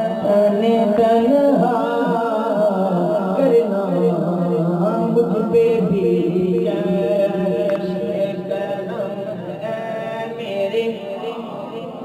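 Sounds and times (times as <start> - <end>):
person singing chant-like melody: 0.0 - 12.0
vocal drone: 0.0 - 12.0.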